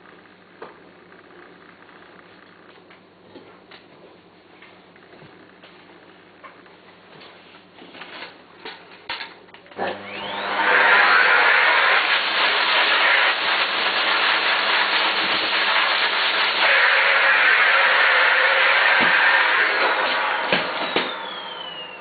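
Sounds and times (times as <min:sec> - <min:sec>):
vacuum cleaner running: 0:09.7 - 0:22.0.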